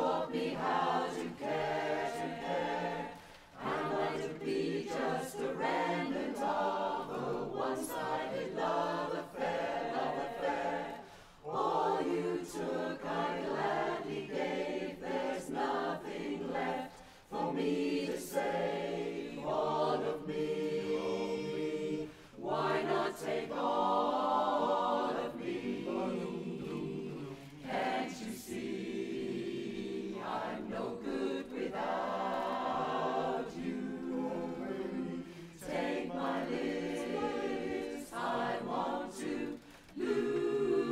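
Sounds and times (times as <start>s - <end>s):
chorus singing in close harmony: 0.0s - 40.9s.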